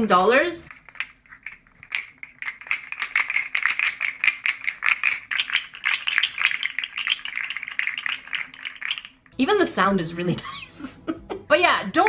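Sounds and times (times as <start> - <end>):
plastic toy segments clicking: 0.7 - 9.3.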